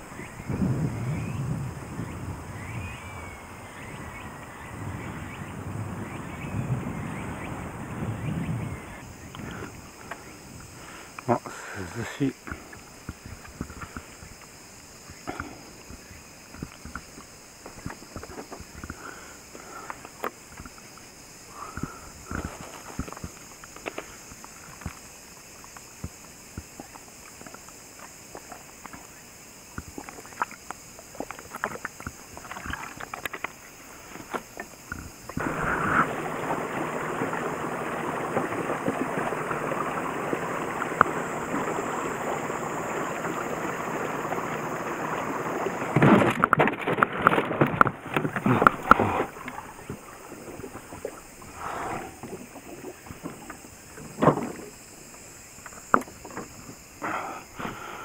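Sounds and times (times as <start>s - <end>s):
steady rush of water: 0.0s - 58.0s
water lapping: 0.0s - 58.0s
loud knocks and splashes: 35.4s - 51.5s, 52.2s - 54.8s
faint knocks on boat: 53.1s - 54.8s.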